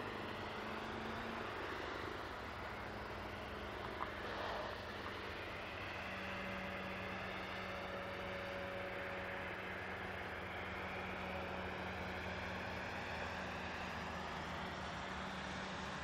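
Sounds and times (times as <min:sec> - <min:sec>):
distant road traffic: 0:00.0 - 0:16.0.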